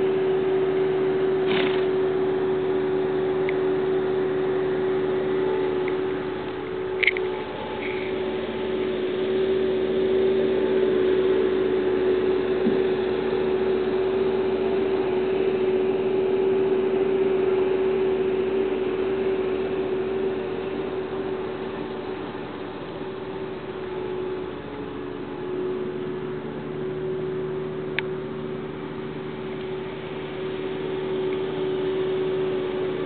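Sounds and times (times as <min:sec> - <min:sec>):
hiss: 0:00.0 - 0:26.1
steady mechanical hum: 0:00.0 - 0:33.0.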